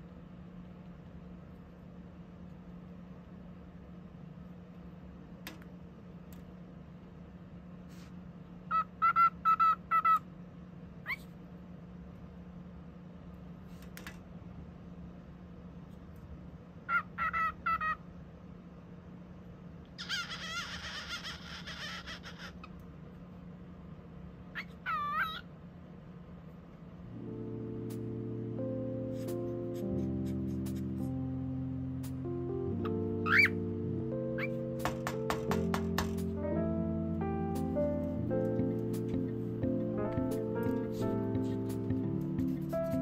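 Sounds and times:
steady low hum: 0.0 - 43.0
cockatiel chirping and chattering: 8.7 - 10.2, 16.9 - 18.0, 20.0 - 22.8, 24.6 - 25.4, 33.2 - 33.6.

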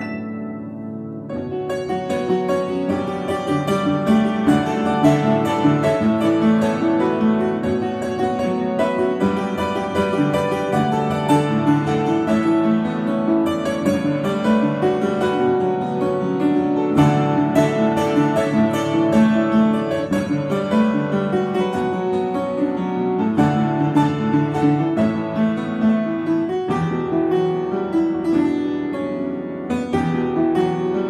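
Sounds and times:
electronic keyboard playing: 0.0 - 1.6.

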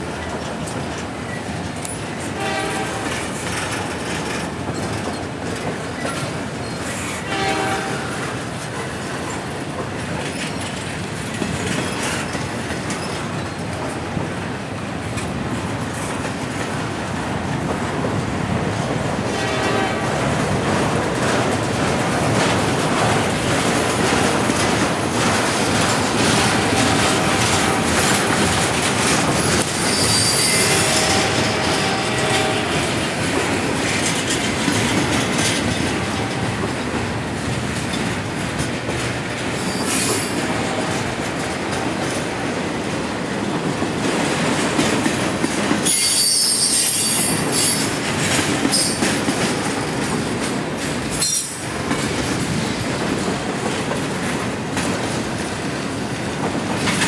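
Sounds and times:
train wheels rumbling on rails: 0.0 - 57.0
high-pitched wheel squeals: 29.8 - 30.9, 45.8 - 47.8.

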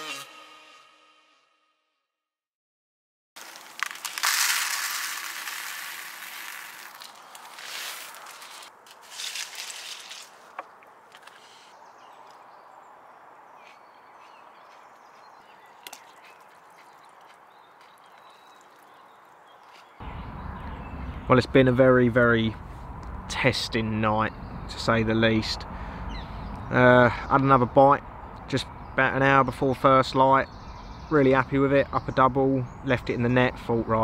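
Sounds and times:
cereal poured into plastic bowl: 3.4 - 10.3.

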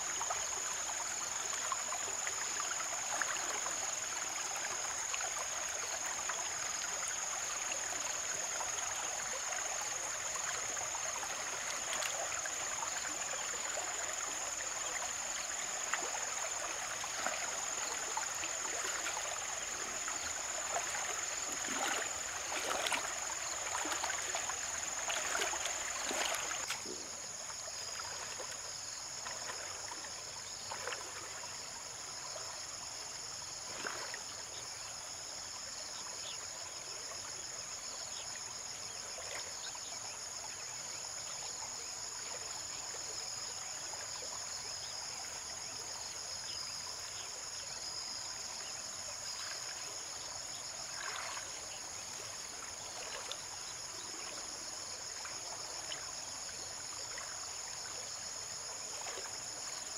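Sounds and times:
insect chorus: 0.0 - 59.9
water sloshing and splashing: 15.9 - 27.1, 27.9 - 31.4, 33.7 - 34.2, 50.9 - 51.6, 58.9 - 59.9.

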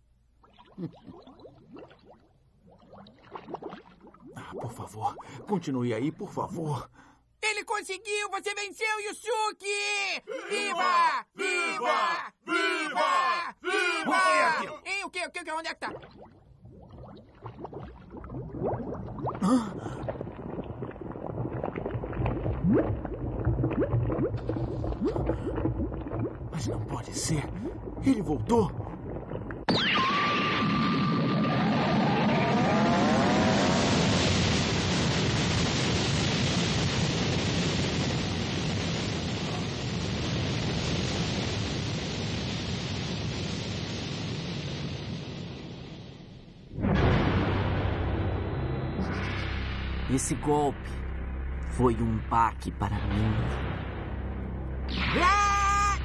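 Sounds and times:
swamp water bubbling and gurgling: 0.2 - 6.9, 15.8 - 42.1
low rumble: 16.6 - 29.7, 45.8 - 55.0
explosion rushing roar: 30.2 - 50.0.

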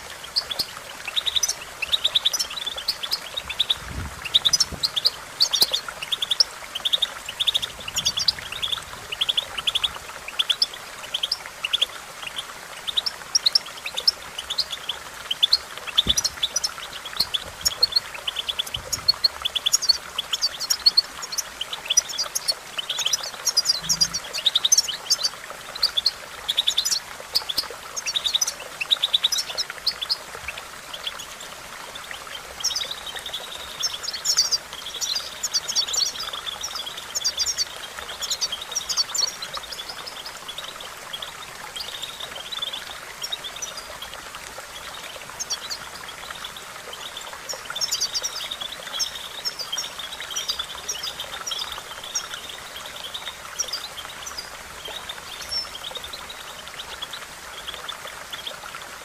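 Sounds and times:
faint steady hiss: 0.0 - 59.0
finch singing: 0.2 - 31.4.

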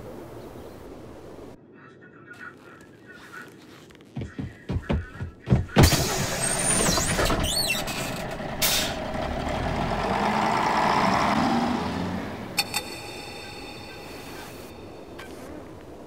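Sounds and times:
vehicle steady rumble: 3.9 - 16.0
vehicle low thumps: 4.2 - 6.2.

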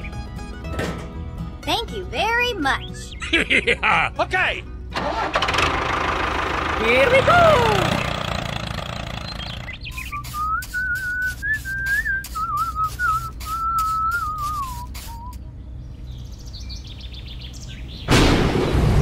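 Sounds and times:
whistled tune: 9.8 - 15.4
thunder: 18.1 - 19.0.

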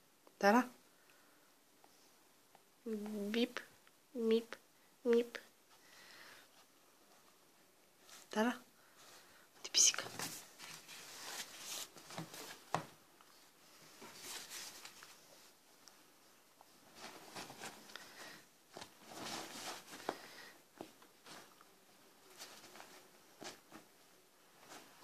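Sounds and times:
bedding rustling: 5.7 - 25.0.

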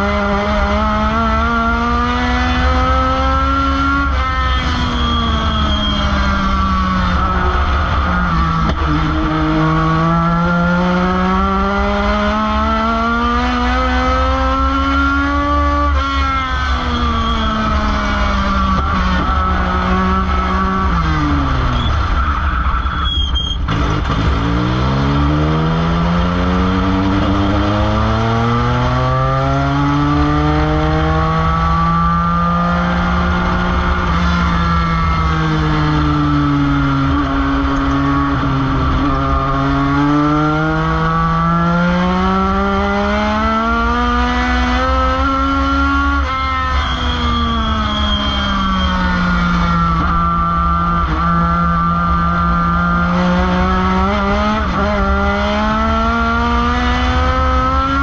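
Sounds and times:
race car engine accelerating: 0.0 - 58.0.

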